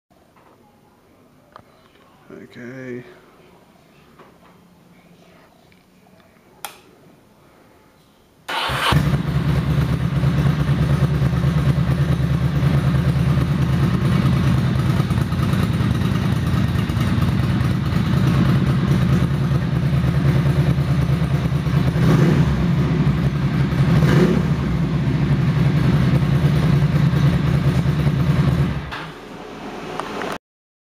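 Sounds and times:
engine revving: 8.5s - 30.4s
motorcycle engine starting and idling: 8.5s - 30.4s.

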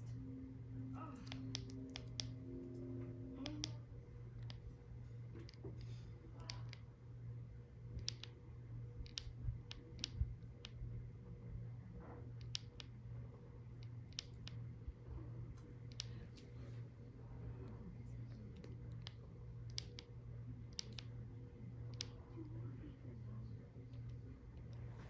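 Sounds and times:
steady low hum: 0.0s - 25.0s
buttons clicking: 1.2s - 3.8s, 4.4s - 4.7s, 8.0s - 8.4s, 9.0s - 10.8s, 15.9s - 16.2s, 18.6s - 20.1s, 20.7s - 21.1s.

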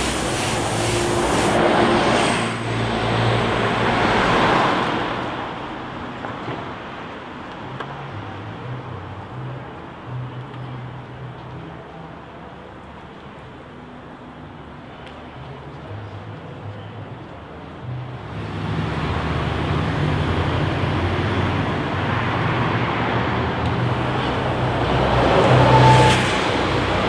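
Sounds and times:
vehicle passing close: 0.0s - 5.5s, 18.4s - 27.0s
road traffic: 0.0s - 27.0s.

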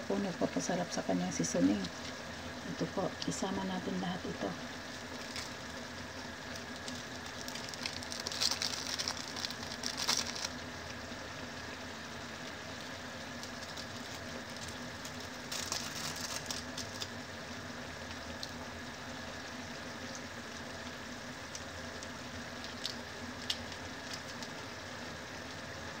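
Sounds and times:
water boiling and bubbling: 0.0s - 26.0s
plastic sachets crinkling: 5.1s - 10.6s, 13.3s - 17.1s, 22.6s - 24.6s.

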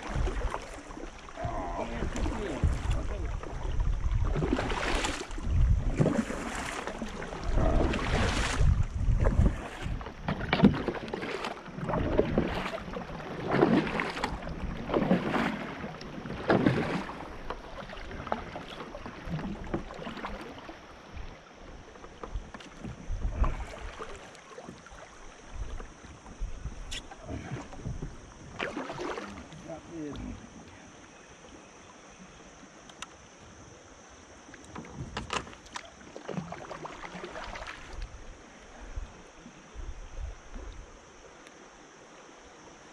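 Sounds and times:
paddle strokes swishing through water: 0.0s - 42.9s
wind buffeting microphone: 1.4s - 10.8s, 25.6s - 28.6s.

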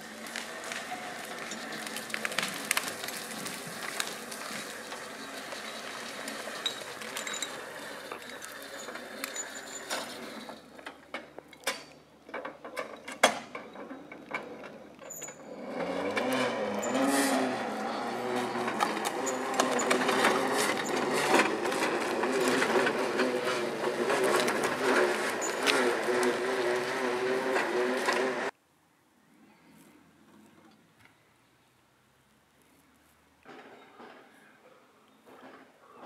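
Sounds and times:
logging carriage whirring and rattling: 0.0s - 11.4s, 12.2s - 28.5s
twigs and branches snapping: 0.1s - 6.4s.

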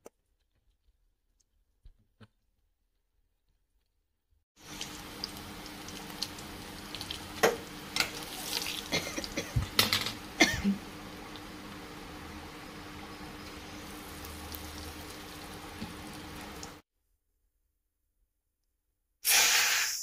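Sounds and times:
oil sizzling in a pan: 4.6s - 16.8s.

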